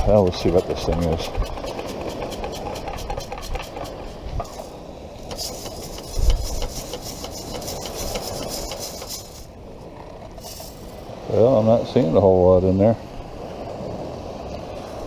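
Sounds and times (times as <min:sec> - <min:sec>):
sand rattling through metal basket: 0:00.0 - 0:09.5, 0:10.4 - 0:11.0.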